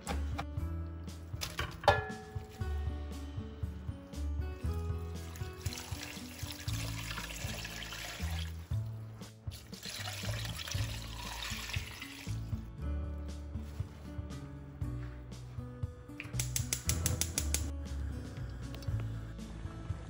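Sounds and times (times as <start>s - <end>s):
background music: 0.0s - 20.0s
water poured into a pot: 5.1s - 8.8s, 9.4s - 12.5s.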